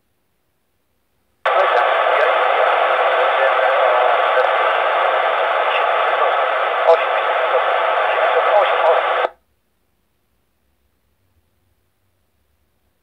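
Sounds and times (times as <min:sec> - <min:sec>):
loud radio hiss: 0:01.5 - 0:09.4.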